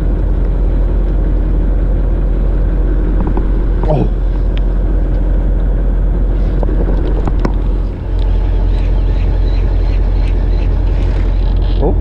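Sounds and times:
boat engine rumbling: 0:00.0 - 0:12.0.

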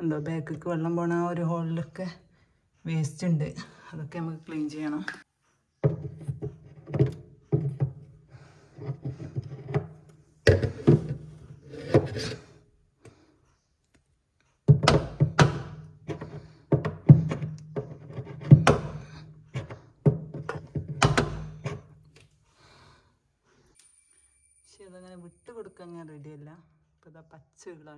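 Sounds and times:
brush scraping in plastic drain hole: 0:08.7 - 0:12.6, 0:16.0 - 0:21.9.

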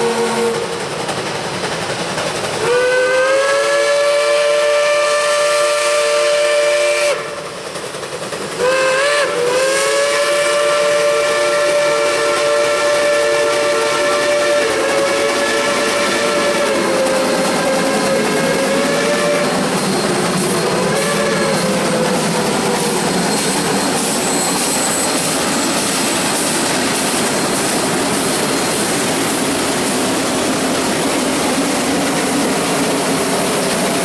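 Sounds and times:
steam whistle blasts: 0:00.0 - 0:00.8, 0:02.6 - 0:07.4, 0:08.6 - 0:25.9
hiss of steam and exhaust: 0:00.0 - 0:34.0.

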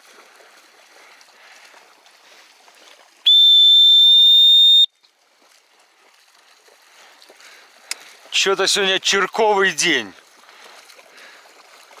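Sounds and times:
dog whistle shrill note: 0:03.3 - 0:04.9.

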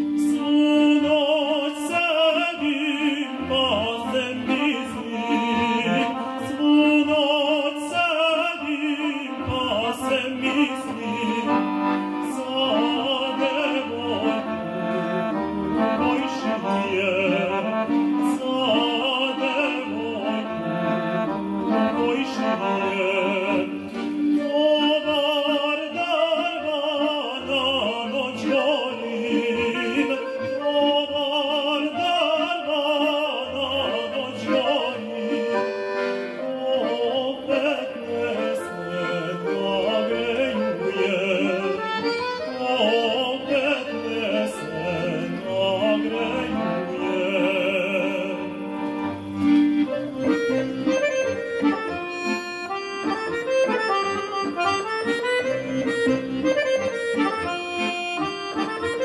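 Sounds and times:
piano accordion: 0:00.0 - 0:59.0
man singing folk song: 0:00.2 - 0:14.5, 0:16.0 - 0:20.8, 0:21.9 - 0:23.8, 0:24.4 - 0:35.6, 0:36.4 - 0:48.7.

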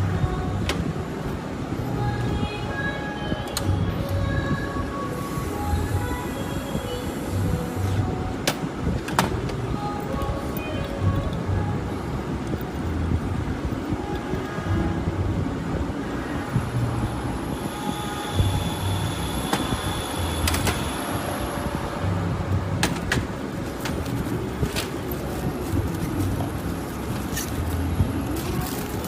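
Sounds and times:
workshop rumble: 0:10.3 - 0:29.0.

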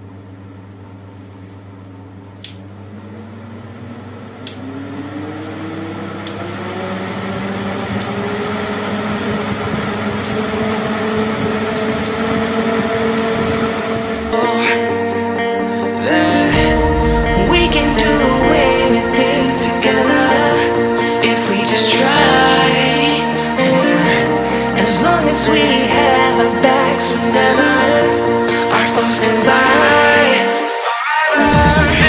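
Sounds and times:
fan motor humming: 0:00.0 - 0:15.2.

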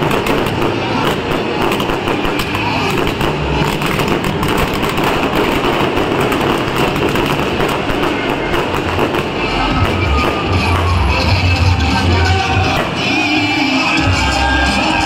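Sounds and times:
firework fountain hissing and crackling: 0:00.0 - 0:15.0.

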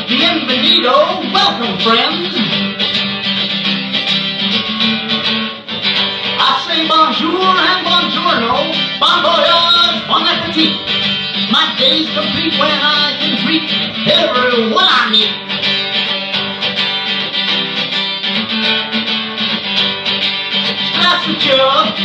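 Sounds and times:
man singing: 0:00.0 - 0:02.6, 0:06.3 - 0:15.4, 0:20.8 - 0:22.0
acoustic guitar strumming: 0:00.0 - 0:22.0.

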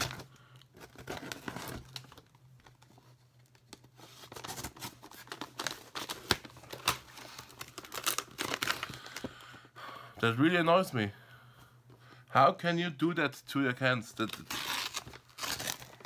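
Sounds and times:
packaging crinkling and tearing: 0:00.0 - 0:09.4, 0:14.2 - 0:16.0.

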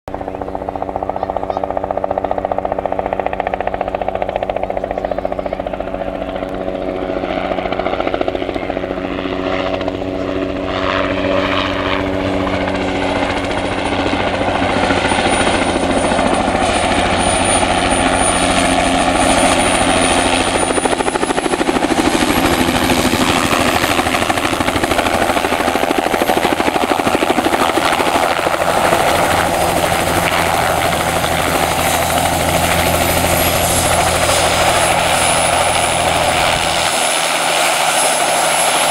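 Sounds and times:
helicopter rotor beating: 0:00.1 - 0:38.9
high turbine engine whine: 0:00.1 - 0:38.9.

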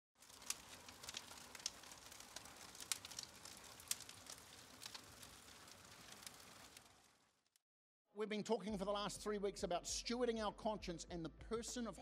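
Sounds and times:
campfire crackling and popping: 0:00.2 - 0:07.6.

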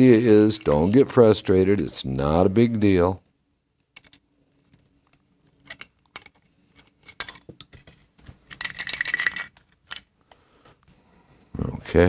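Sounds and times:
small metal parts clinking: 0:00.4 - 0:01.9, 0:03.9 - 0:11.0.

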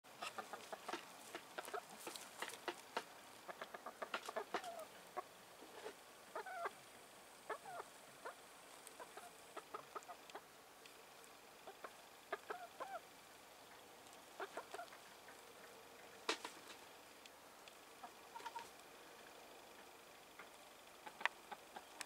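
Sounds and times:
hens wavering calls: 0:00.1 - 0:05.4, 0:06.3 - 0:06.8, 0:07.4 - 0:10.6, 0:11.6 - 0:13.2, 0:14.2 - 0:16.3, 0:18.0 - 0:18.8
hens clucking: 0:00.1 - 0:06.8, 0:07.4 - 0:10.6, 0:11.6 - 0:16.9, 0:18.0 - 0:18.8, 0:19.7 - 0:22.0.

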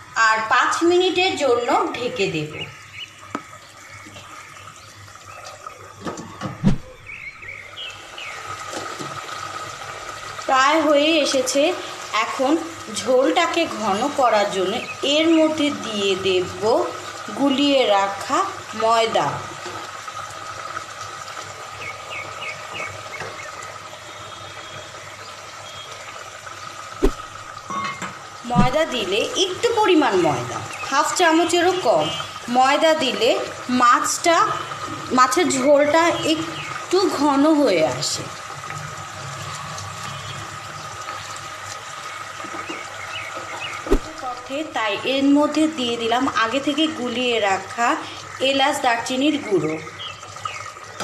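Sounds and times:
simmering pot hiss: 0:00.0 - 0:51.0.

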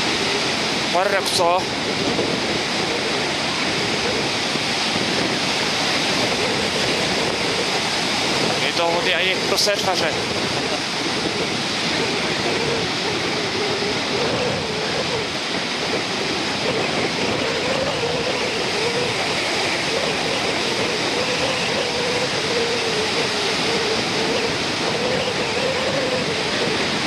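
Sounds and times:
sea waves breaking on beach: 0:00.0 - 0:27.0
faint wavering hum: 0:10.1 - 0:27.0.

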